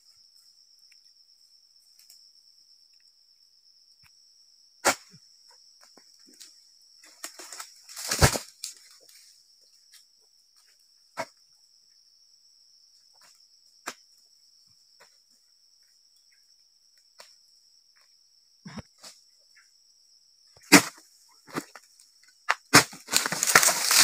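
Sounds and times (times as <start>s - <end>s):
insects droning: 0.0s - 24.0s
fronds crashing down: 7.2s - 8.8s, 22.8s - 24.0s.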